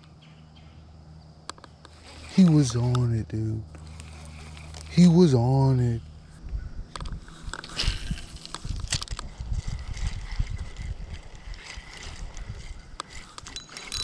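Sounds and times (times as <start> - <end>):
fishing reel handling: 1.5 - 3.1, 3.7 - 5.3, 6.9 - 14.0
wind buffeting microphone: 6.4 - 14.0.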